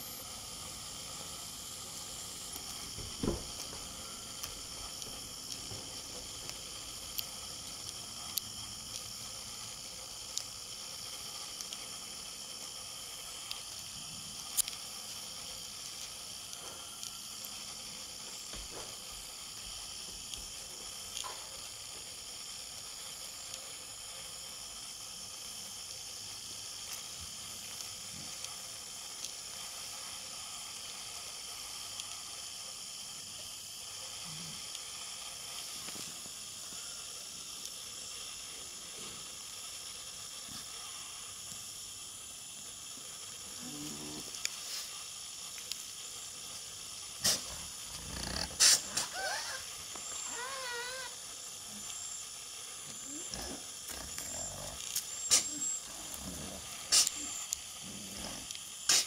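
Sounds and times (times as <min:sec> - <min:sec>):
outdoor background hiss: 0:00.0 - 0:59.0
faint ticks: 0:13.4 - 0:14.9, 0:45.5 - 0:46.0.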